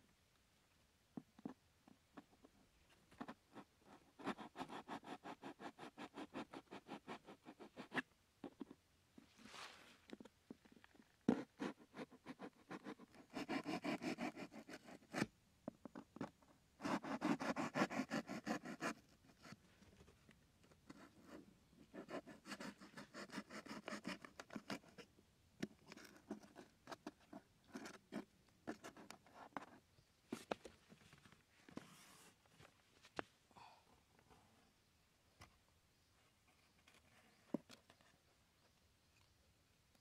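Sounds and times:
scratches and taps: 1.2 - 5.1, 18.6 - 30.8
knife sawing through cardboard: 16.8 - 19.0.

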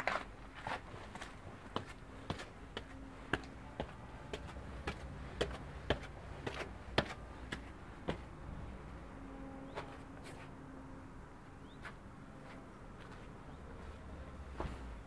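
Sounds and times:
footsteps on stone steps: 0.0 - 8.4, 13.0 - 15.0.

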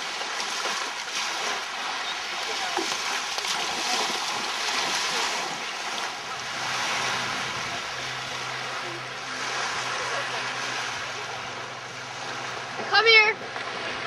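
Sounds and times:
lake waves washing onto sand: 0.0 - 14.0.

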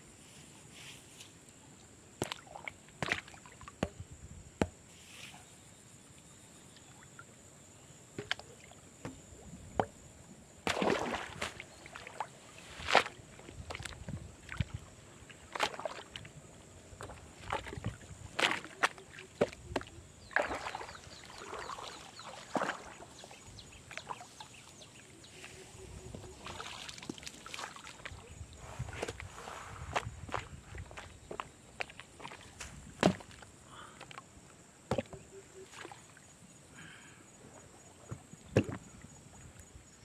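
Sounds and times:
pond water splashing: 2.2 - 4.0, 8.1 - 34.2, 34.9 - 37.1, 38.0 - 39.5.

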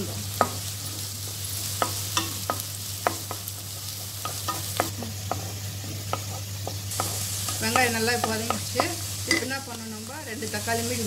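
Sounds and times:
onions sizzling in oil: 0.0 - 11.0
spatula tapping and scraping pan: 1.7 - 9.6.

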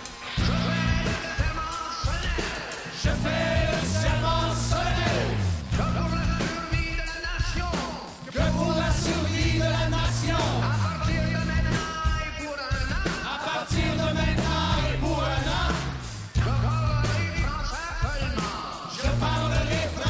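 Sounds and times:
live band music: 0.0 - 20.0
voices singing: 0.0 - 20.0
held bass line: 0.4 - 1.2, 3.1 - 6.5, 8.4 - 11.9, 13.7 - 17.4, 19.0 - 20.0.

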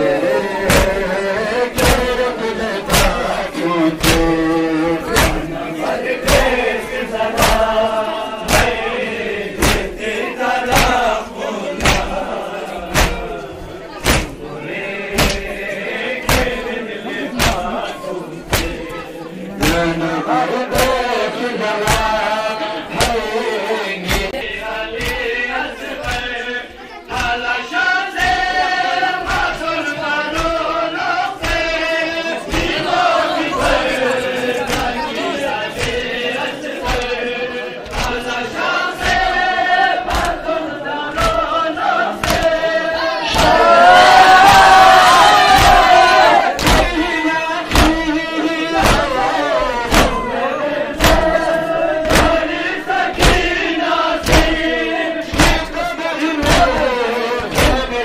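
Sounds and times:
men chanting in unison: 0.0 - 58.0
hands beating on chests: 0.6 - 1.1, 1.7 - 2.2, 2.8 - 5.6, 7.2 - 10.0, 10.6 - 11.2, 11.8 - 14.4, 15.1 - 16.6, 17.3 - 18.9, 19.6 - 20.0, 21.8 - 22.3, 22.9 - 23.4, 24.0 - 25.4, 26.0 - 26.4, 37.8 - 38.3, 39.0 - 40.5, 41.1 - 41.6, 42.2 - 42.7, 43.3 - 55.8, 56.4 - 58.0.

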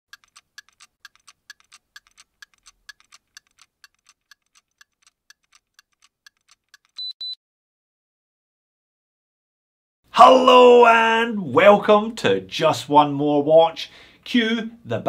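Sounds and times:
watch ticking: 0.1 - 7.2
short high beeps: 7.0 - 7.4.

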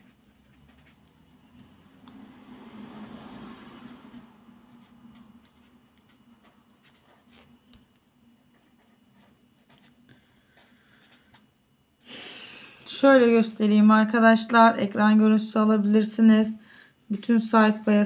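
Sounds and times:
pen scratching on paper: 0.0 - 2.3, 2.9 - 11.5.

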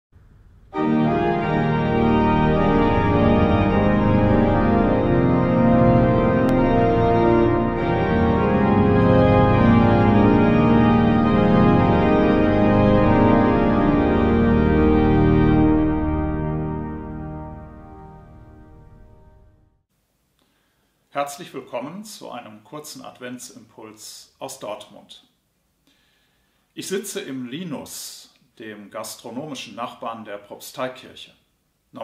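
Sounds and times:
pipe organ chords: 0.2 - 19.8.

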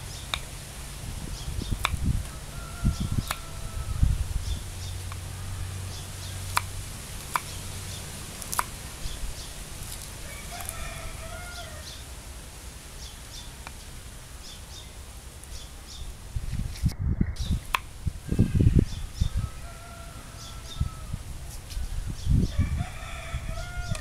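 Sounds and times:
chicken calling: 1.6 - 6.7, 7.3 - 12.1, 18.2 - 21.2
knife chopping on wooden board: 8.4 - 8.8.

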